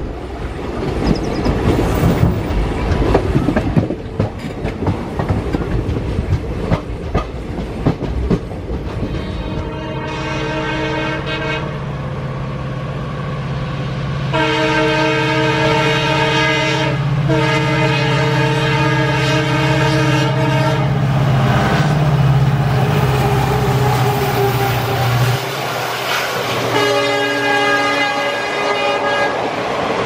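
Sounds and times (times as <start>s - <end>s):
train running rumble: 0.0s - 30.0s
locomotive horn blasts: 9.0s - 11.8s, 14.3s - 21.0s, 26.7s - 29.5s.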